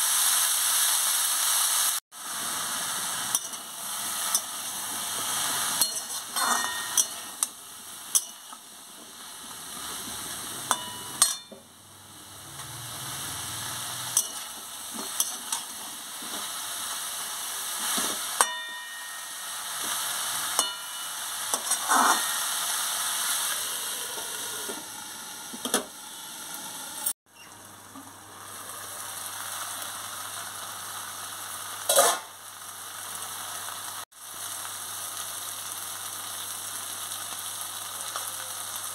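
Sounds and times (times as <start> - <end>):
vegetables sizzling in oil: 0.0 - 38.9
metal spatula scraping pan: 5.3 - 7.5, 20.6 - 22.6.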